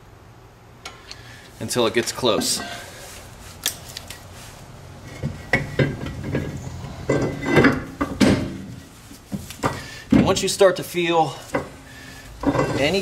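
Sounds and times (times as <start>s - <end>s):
metal clanks and scrapes: 2.3s - 3.0s, 5.0s - 9.0s, 12.4s - 13.0s.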